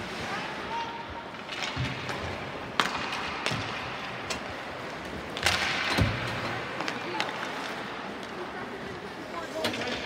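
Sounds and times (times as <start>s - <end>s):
hockey sticks clacking on puck: 1.3s - 8.5s.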